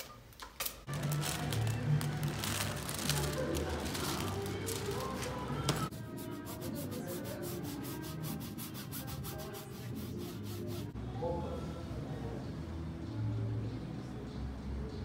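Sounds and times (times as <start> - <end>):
paintbrush scrubbing on canvas: 5.9 - 11.0.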